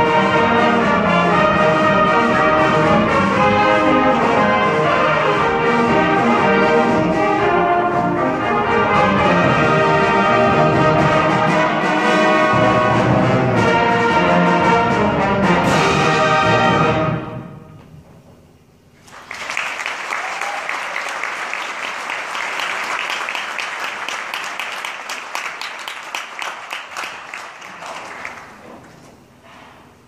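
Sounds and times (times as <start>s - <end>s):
audience applause: 19.0s - 29.0s.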